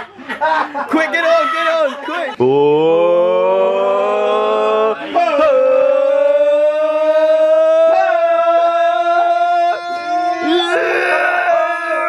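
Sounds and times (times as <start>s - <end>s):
voices singing a long wailing note: 2.4s - 12.0s.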